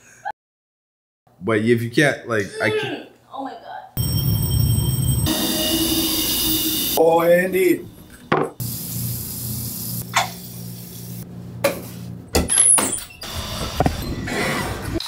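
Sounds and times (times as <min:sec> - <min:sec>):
low hum: 0:04.0 - 0:11.6
door squeaking open: 0:12.5 - 0:14.7.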